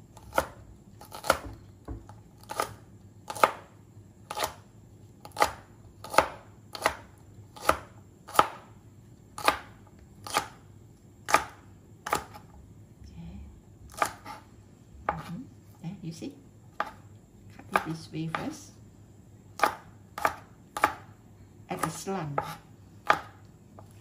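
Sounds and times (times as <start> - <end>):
cleaver chopping on plastic board: 5.3 - 8.6, 21.8 - 23.9.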